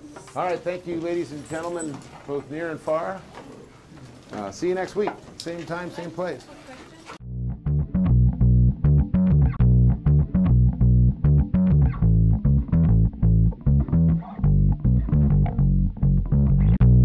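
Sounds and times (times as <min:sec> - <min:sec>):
plucked bass-heavy music: 0:07.2 - 0:17.0.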